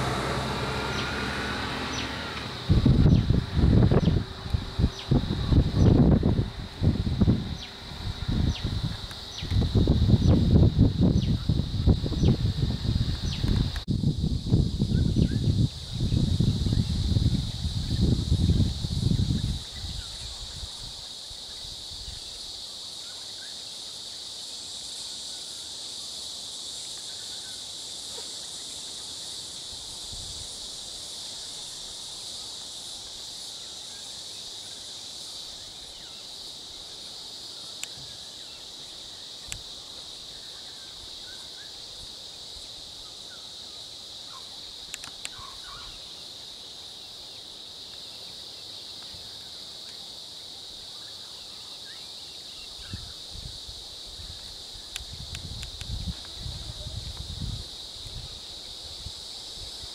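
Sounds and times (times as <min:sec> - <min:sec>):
high-pitched insect chorus: 0:00.0 - 0:59.9
faint clicks: 0:44.9 - 0:45.4.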